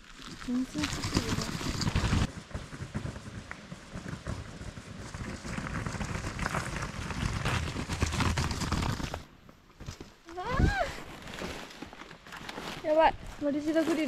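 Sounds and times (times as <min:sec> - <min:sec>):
footsteps on gravel: 0:00.0 - 0:02.3
cart wheels rattling on rough ground: 0:00.0 - 0:14.0.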